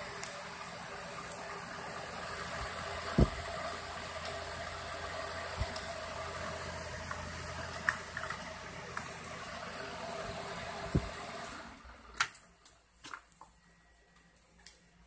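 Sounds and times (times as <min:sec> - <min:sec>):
fan running: 0:00.0 - 0:12.7
low thump: 0:03.2 - 0:03.4.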